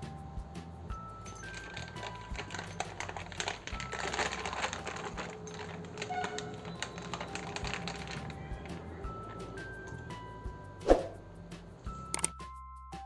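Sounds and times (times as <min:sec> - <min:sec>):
plastic sheet crinkling: 0:01.3 - 0:09.5.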